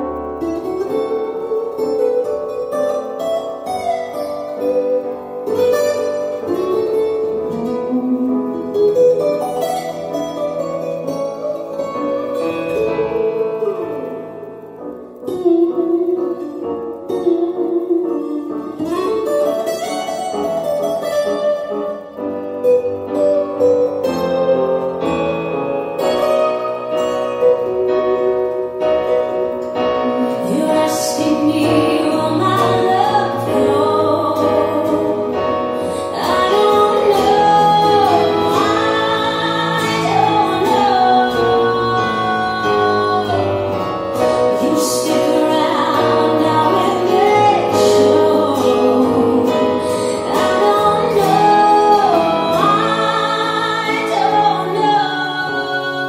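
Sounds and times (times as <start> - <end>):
piano and sustained chords: 0.0 - 56.0
person singing: 26.5 - 56.0.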